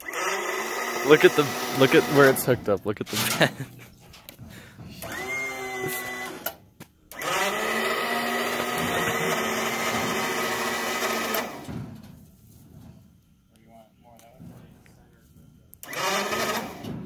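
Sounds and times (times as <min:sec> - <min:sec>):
crane electric motor whining: 0:00.0 - 0:03.6, 0:04.3 - 0:12.0, 0:15.7 - 0:17.0.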